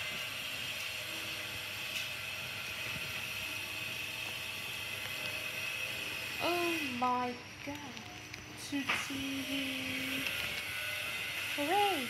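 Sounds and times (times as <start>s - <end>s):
faint whirring hum: 0.0s - 12.0s.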